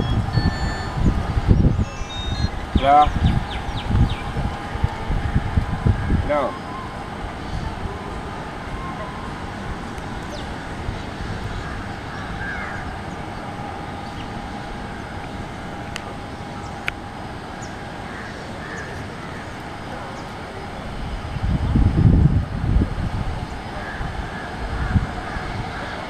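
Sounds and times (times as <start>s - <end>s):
distant jet engine noise: 0.0s - 26.0s
crows cawing: 11.5s - 12.9s, 18.0s - 19.6s, 23.8s - 26.0s.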